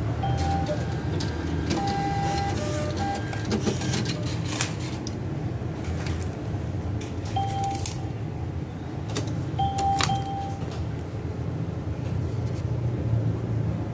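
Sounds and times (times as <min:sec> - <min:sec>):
atm beeping: 0:00.0 - 0:05.0, 0:07.1 - 0:08.4, 0:09.2 - 0:11.0
keypad and mechanism clicks: 0:07.2 - 0:08.0, 0:09.1 - 0:10.8.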